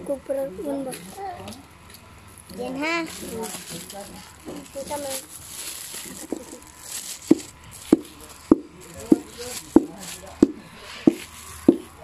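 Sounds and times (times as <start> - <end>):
stone knocking nuts on concrete: 7.3 - 12.0.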